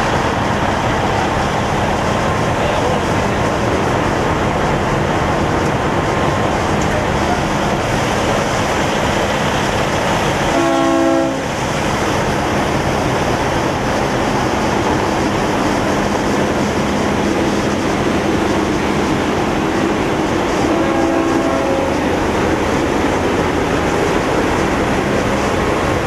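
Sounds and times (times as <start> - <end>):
truck air horn blast: 10.5 - 11.5, 20.6 - 22.0.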